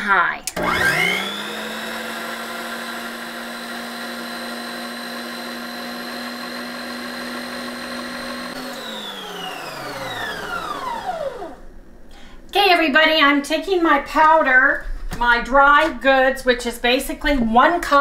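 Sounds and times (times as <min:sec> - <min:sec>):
stand mixer motor whining: 0:00.5 - 0:11.8.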